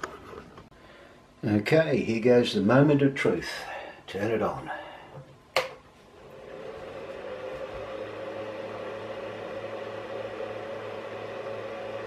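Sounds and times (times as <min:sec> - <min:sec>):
cooling fans whirring: 0:00.0 - 0:12.0
power switch clicking: 0:05.5 - 0:05.8.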